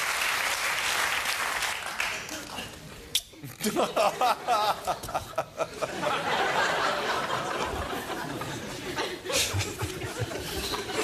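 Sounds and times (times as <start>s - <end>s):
audience laughing: 3.5s - 11.0s.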